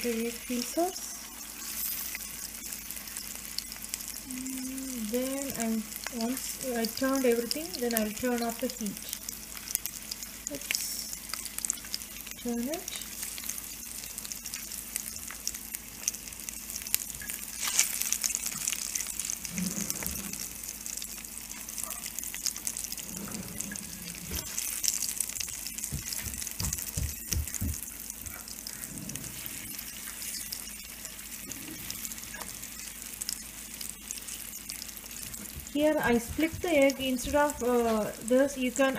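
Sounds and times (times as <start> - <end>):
eggs sizzling in hot oil: 0.0 - 38.9.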